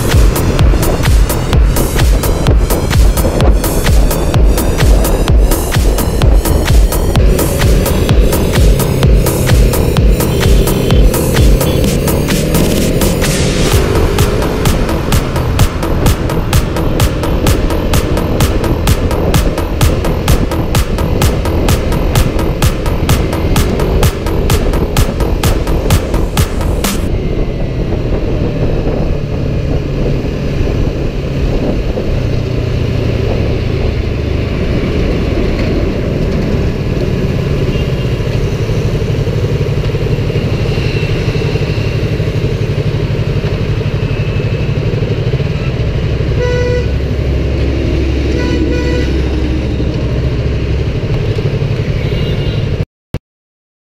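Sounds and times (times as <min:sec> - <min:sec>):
motorcycle engine revving: 0:00.0 - 0:52.8
road and wind noise: 0:00.0 - 0:52.8
vehicle horns honking: 0:10.0 - 0:12.3, 0:37.5 - 0:38.3, 0:45.4 - 0:47.5, 0:48.2 - 0:50.2, 0:51.9 - 0:52.8.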